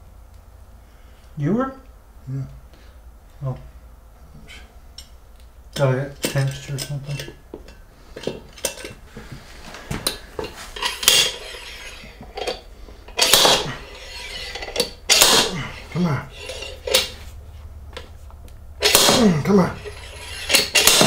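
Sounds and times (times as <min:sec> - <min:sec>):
metal hand tools clinking: 0:05.7 - 0:09.0, 0:10.1 - 0:17.2, 0:18.8 - 0:21.0.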